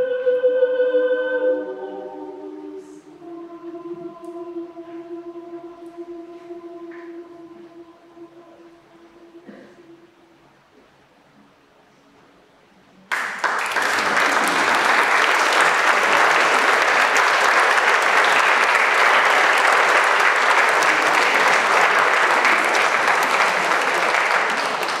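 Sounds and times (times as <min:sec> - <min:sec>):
audience applauding: 0:13.1 - 0:25.0.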